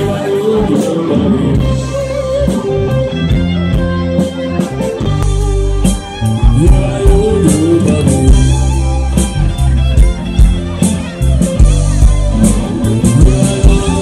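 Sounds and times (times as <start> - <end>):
bass guitar: 0.0 - 14.0
drums: 0.0 - 14.0
electric guitar: 0.0 - 14.0.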